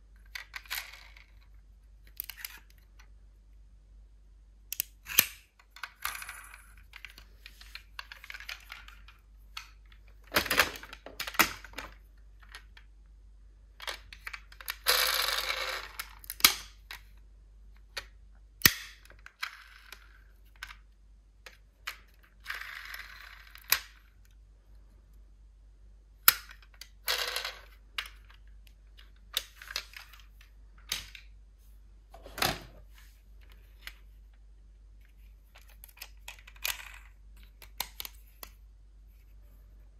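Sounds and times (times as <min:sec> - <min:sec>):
toy cars clinking and clattering: 0:00.2 - 0:01.5, 0:02.1 - 0:02.8, 0:13.8 - 0:17.1, 0:21.5 - 0:24.1, 0:26.4 - 0:28.4, 0:35.6 - 0:38.1.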